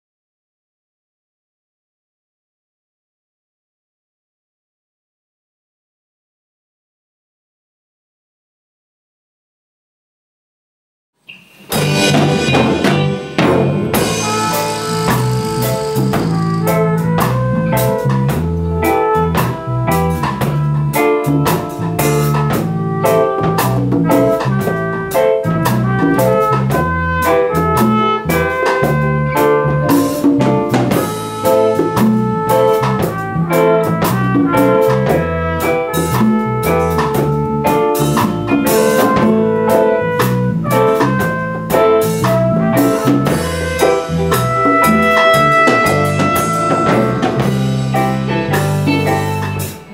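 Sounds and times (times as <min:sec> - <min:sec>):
live band with trumpet: 0:11.4 - 0:49.9.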